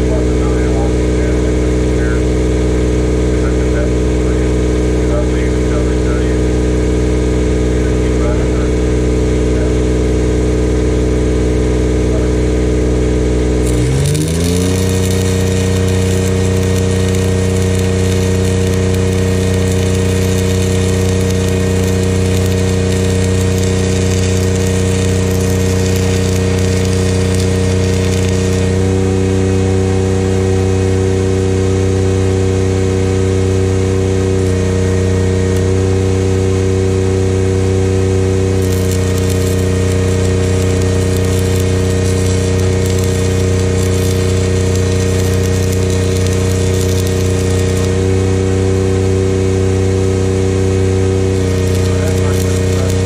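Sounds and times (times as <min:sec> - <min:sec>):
welder engine droning: 0:00.0 - 0:53.0
welding arc crackling hiss: 0:13.5 - 0:29.6, 0:33.4 - 0:36.4, 0:37.0 - 0:48.6, 0:49.7 - 0:53.0.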